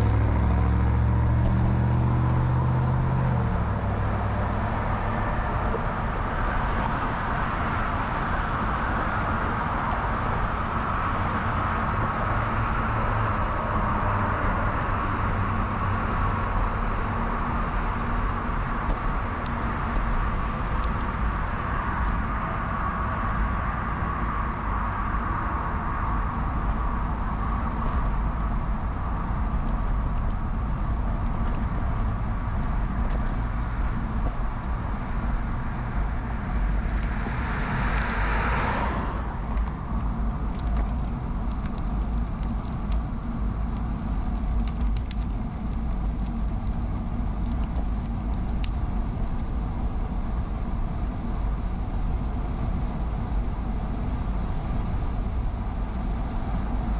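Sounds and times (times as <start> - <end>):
bicycle tyres on road: 0.0 - 56.9
car passing: 17.8 - 40.5.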